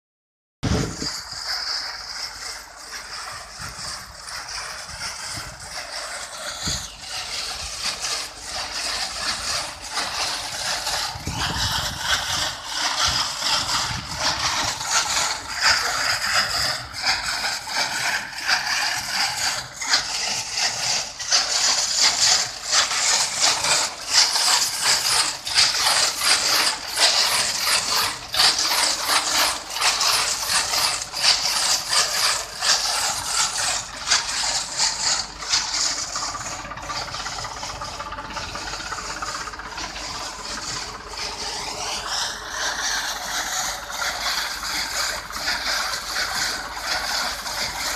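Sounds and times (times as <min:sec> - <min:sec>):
tractor engine running: 0:00.6 - 0:47.9
drum tumbling rhizomes rattling: 0:22.0 - 0:44.0.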